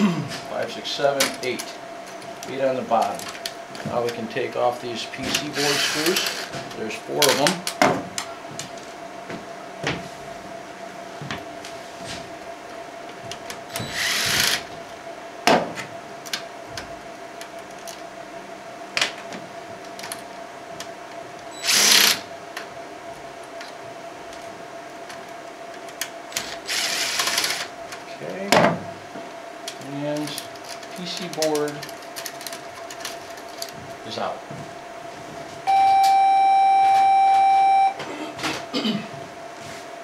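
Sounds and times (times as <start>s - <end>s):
cordless driver whirring: 5.5s - 6.5s, 13.7s - 14.7s, 21.6s - 22.2s, 26.4s - 27.7s.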